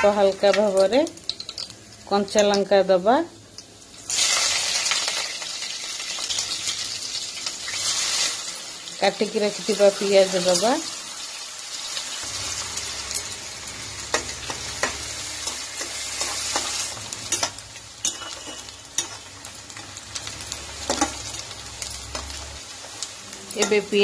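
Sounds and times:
onions sizzling in oil: 0.0 - 24.0
metal spatula scraping pan: 14.0 - 19.2.

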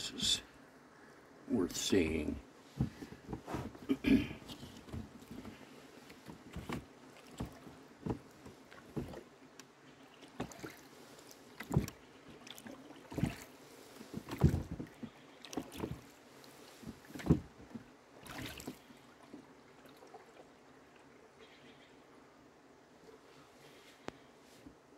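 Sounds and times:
oars knocking in oarlocks: 2.7 - 9.3, 11.6 - 16.1, 16.7 - 19.4.

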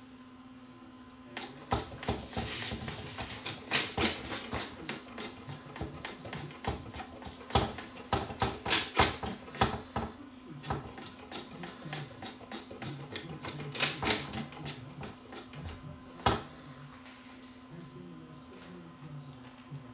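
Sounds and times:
turntable mechanism clicking and rattling: 1.4 - 9.8, 10.6 - 15.8.

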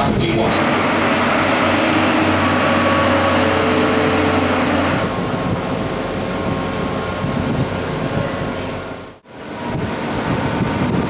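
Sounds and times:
machinery hum: 0.0 - 11.0
wind-like noise: 0.0 - 11.0
humming tones: 0.6 - 7.7.

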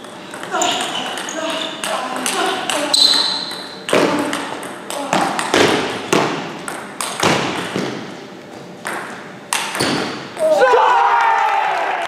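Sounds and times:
table tennis ball hits: 0.3 - 8.1, 8.8 - 10.4.

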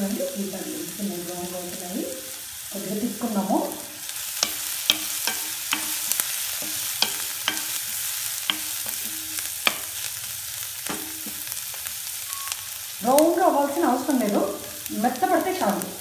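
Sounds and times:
onions sizzling in pan: 0.0 - 16.0
wooden spatula clicking on pan: 4.4 - 10.1, 10.8 - 12.6.

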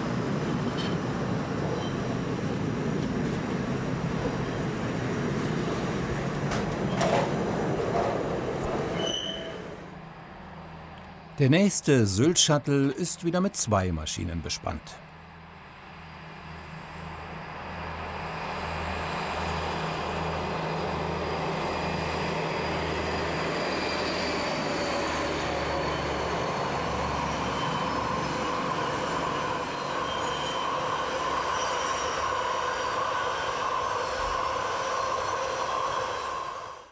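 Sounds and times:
wagon wheels squealing: 8.8 - 9.8, 22.3 - 32.4.

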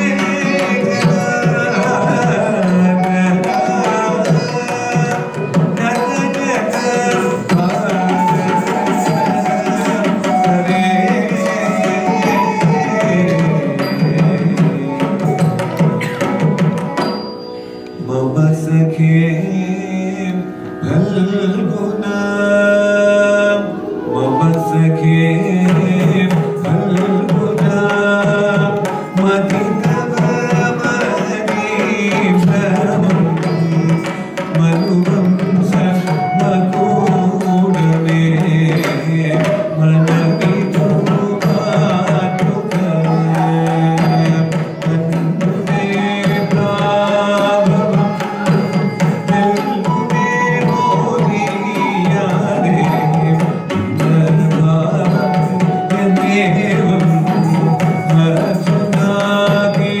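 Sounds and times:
hand drum percussion: 0.0 - 19.6, 24.1 - 60.0.

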